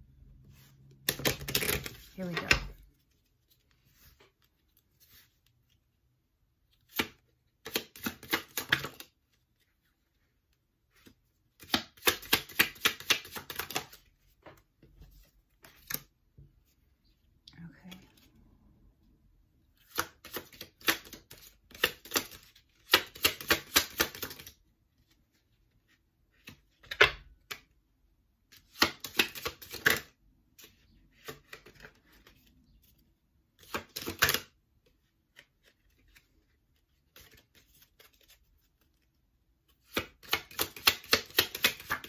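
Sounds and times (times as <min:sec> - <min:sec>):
cards being shuffled: 0:00.5 - 0:05.8, 0:06.7 - 0:10.2, 0:10.9 - 0:16.1, 0:19.8 - 0:27.7, 0:28.5 - 0:32.5, 0:33.5 - 0:42.0.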